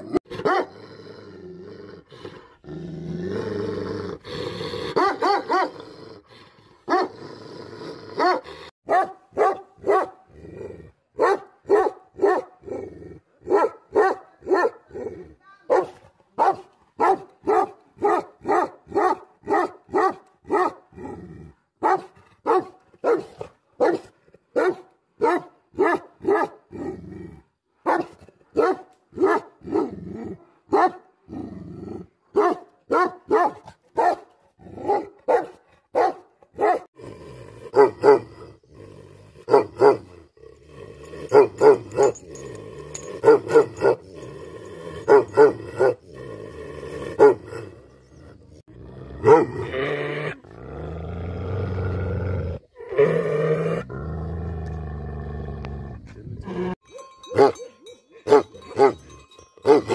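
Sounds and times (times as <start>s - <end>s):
dogs barking: 0.4s - 0.7s, 4.9s - 5.8s, 8.2s - 10.2s, 11.2s - 12.6s, 13.5s - 14.8s, 15.7s - 20.8s, 21.8s - 26.6s, 27.8s - 29.9s, 30.7s - 31.0s, 32.4s - 36.9s, 37.8s - 38.3s, 39.4s - 40.1s, 41.2s - 44.2s, 45.0s - 46.0s, 47.1s - 47.6s, 49.2s - 49.6s, 57.0s - 59.9s.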